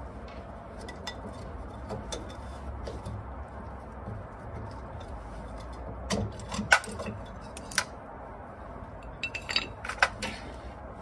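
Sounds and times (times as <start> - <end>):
metal parts clinking on concrete: 9.0 - 10.4.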